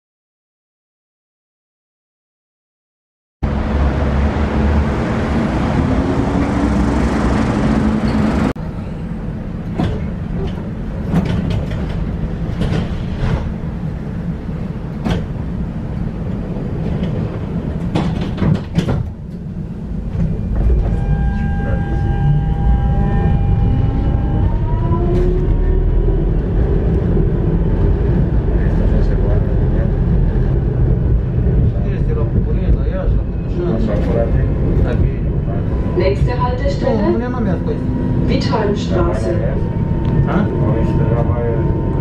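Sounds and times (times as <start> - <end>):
tram running noise: 3.4 - 42.0
clicks and knocks of tram ride: 6.4 - 8.6, 9.4 - 21.2, 25.2 - 36.7
electric traction motors whining: 20.6 - 29.1, 35.3 - 42.0.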